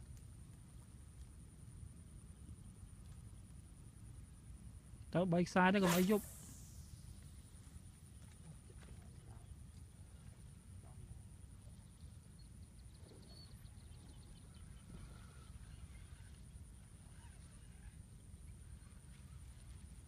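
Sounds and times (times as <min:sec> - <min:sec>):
faint high-pitched whine: 0:00.0 - 0:20.0.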